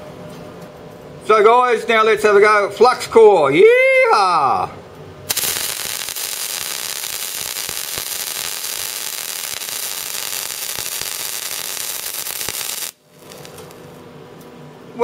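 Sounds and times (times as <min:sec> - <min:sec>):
welding arc crackling: 0:05.3 - 0:14.0
welding pops: 0:05.3 - 0:14.0.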